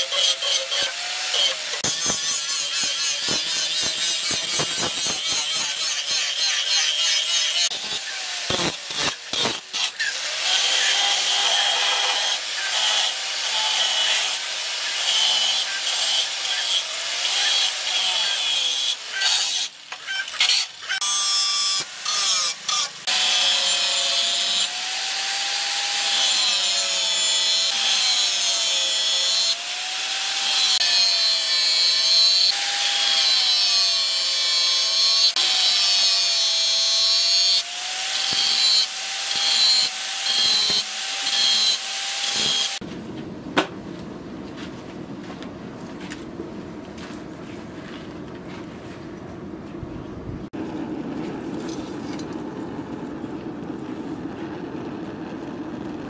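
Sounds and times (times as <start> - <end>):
angle grinder grinding steel: 0.0 - 42.8.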